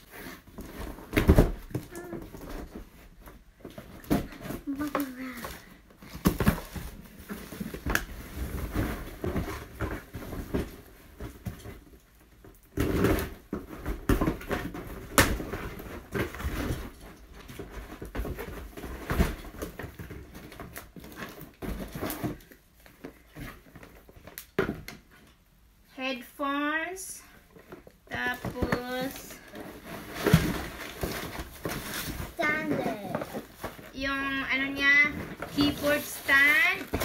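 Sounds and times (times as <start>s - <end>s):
bubble wrap rustling: 0.0s - 24.5s, 27.5s - 37.0s
cardboard boxes handled: 27.6s - 37.0s.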